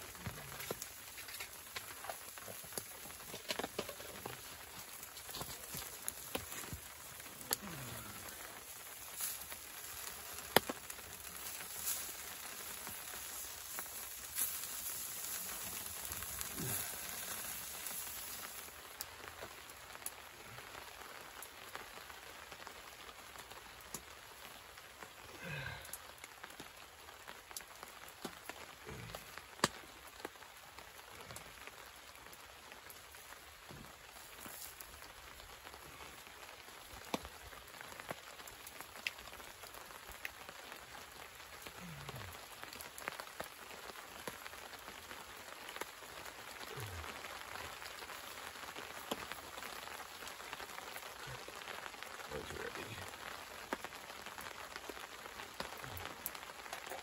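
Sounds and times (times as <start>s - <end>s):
hot dogs sizzling: 0.0s - 57.0s
wood stove crackling: 0.0s - 57.0s.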